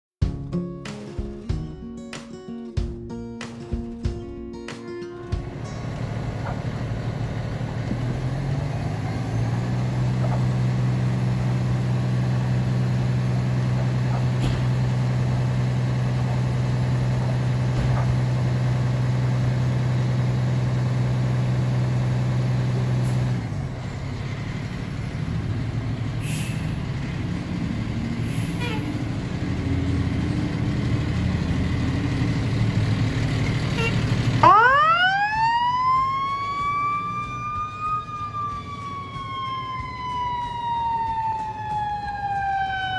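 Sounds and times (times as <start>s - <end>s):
diesel engine running: 5.3s - 42.9s
siren rising wail: 34.4s - 42.9s.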